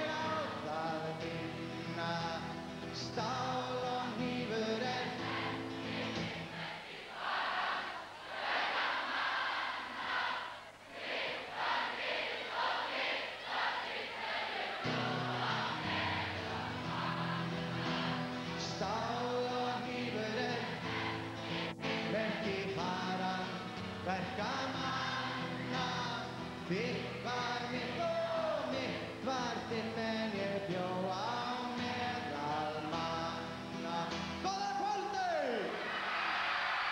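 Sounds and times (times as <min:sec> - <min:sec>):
man singing: 0:00.0 - 0:05.3, 0:18.5 - 0:20.9, 0:22.0 - 0:35.7
strummed acoustic guitar: 0:00.0 - 0:06.5, 0:14.8 - 0:35.0.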